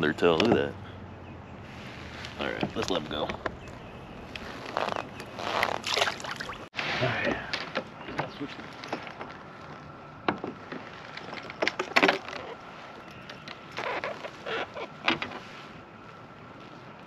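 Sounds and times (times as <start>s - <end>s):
knocks and clatter on kayak: 10.2s - 12.6s.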